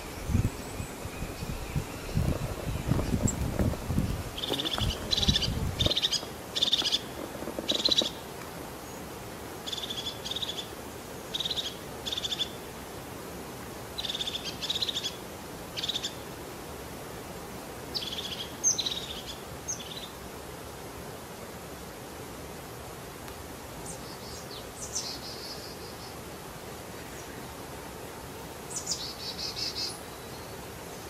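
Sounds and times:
wind rumble on microphone: 0.0s - 8.1s
background hiss: 0.0s - 31.0s
bird rattling calls: 0.8s - 8.2s.

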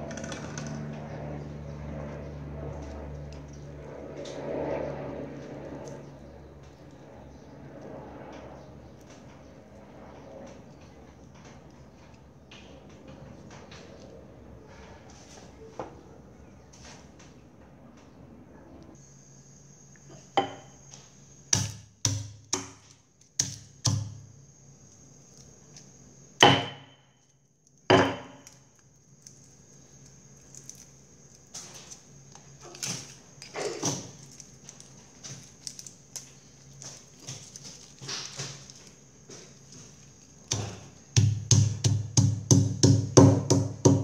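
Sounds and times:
knocks and thuds on hard surface: 40.5s - 44.0s.

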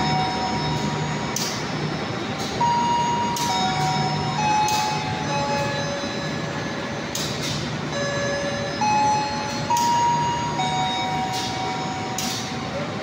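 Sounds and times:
train wheels squealing: 0.0s - 13.0s.

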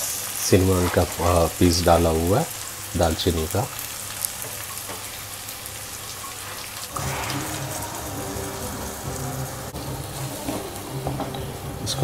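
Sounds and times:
onions sizzling in hot oil: 0.0s - 12.0s
low sustained musical tones: 6.9s - 12.0s.

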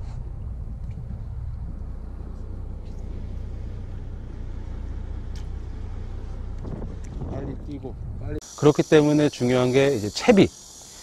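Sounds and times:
wind noise: 0.0s - 3.3s, 6.0s - 8.4s
boat engine humming: 0.0s - 8.5s.

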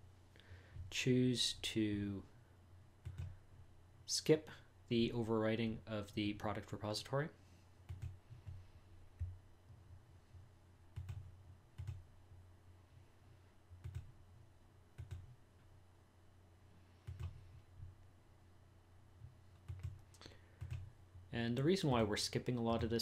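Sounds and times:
steady low hum: 0.0s - 23.0s
computer mouse clicks: 3.0s - 3.4s, 7.9s - 8.6s, 11.0s - 12.0s, 13.8s - 14.1s, 15.0s - 15.4s, 17.0s - 17.4s, 19.5s - 20.9s.

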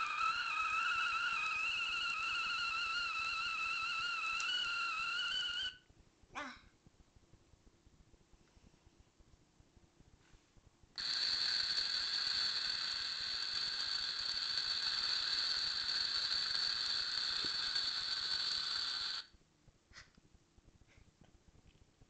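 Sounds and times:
electronic toy hissing: 0.0s - 5.8s, 11.0s - 19.3s.

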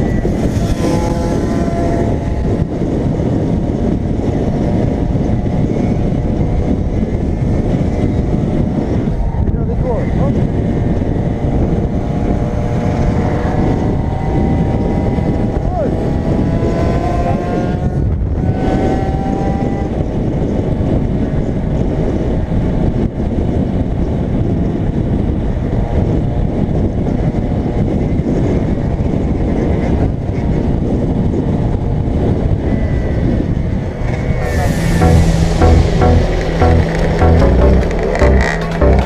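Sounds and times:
motorbike engines whining: 0.0s - 20.2s
wind buffeting camera: 0.0s - 35.4s
electronic music with heavy beat: 34.8s - 39.0s.

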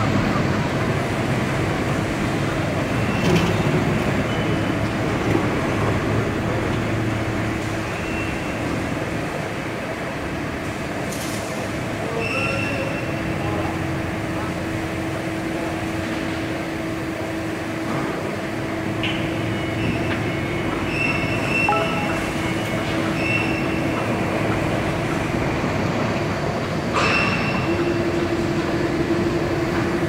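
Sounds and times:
press brake machine hum: 18.8s - 24.7s
short high-pitched whines: 21.5s - 22.8s.

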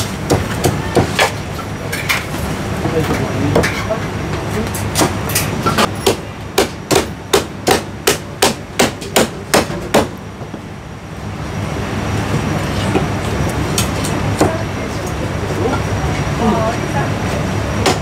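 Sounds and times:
cleaver chopping on wooden block: 6.0s - 10.1s.

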